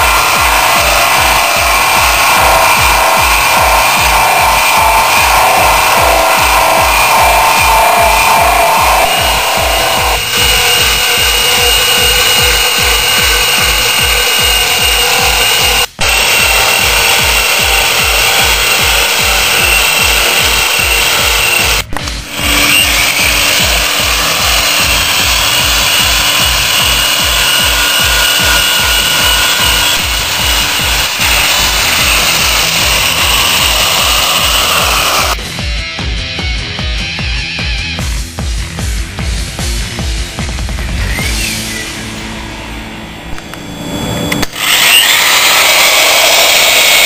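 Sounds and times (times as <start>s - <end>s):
burnishing machine grinding: 0.0s - 35.4s, 43.3s - 47.0s
background music with beat: 35.0s - 42.6s.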